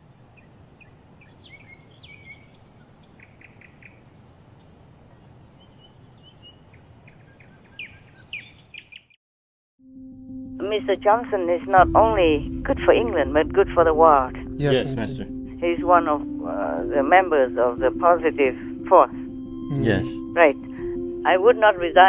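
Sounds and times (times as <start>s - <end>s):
small birds chirping: 0.0s - 9.2s
low background rumble: 10.6s - 18.7s.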